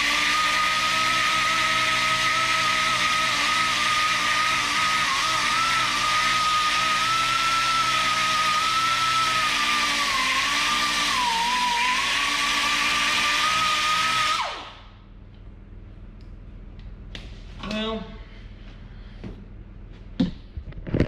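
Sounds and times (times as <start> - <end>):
die grinder whining: 0.0 - 14.9.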